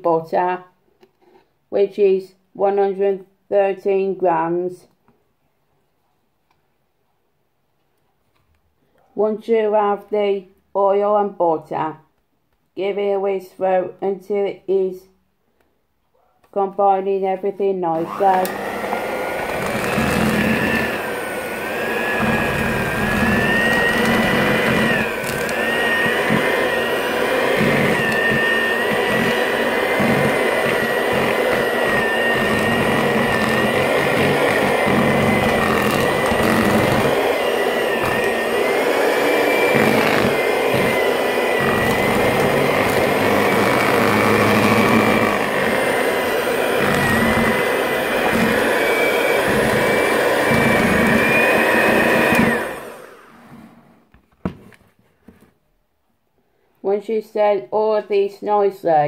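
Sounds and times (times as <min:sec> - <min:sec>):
electric hand mixer whining: 0:18.0 - 0:53.9.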